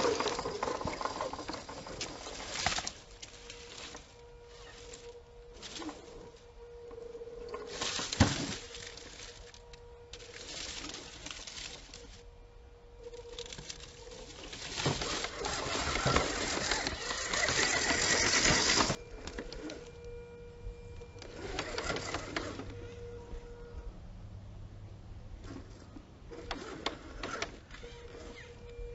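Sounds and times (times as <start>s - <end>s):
tyres crunching over rocks: 0.0s - 12.3s, 12.9s - 20.1s, 20.9s - 22.9s
electric motor and gears whining: 0.0s - 24.7s, 25.3s - 28.9s.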